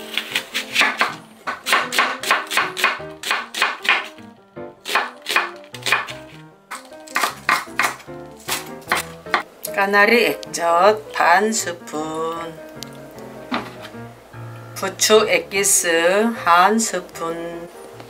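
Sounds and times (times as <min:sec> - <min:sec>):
background music: 0:00.0 - 0:18.0
knife chopping on wooden board: 0:00.1 - 0:04.2, 0:04.8 - 0:09.5, 0:13.5 - 0:13.9.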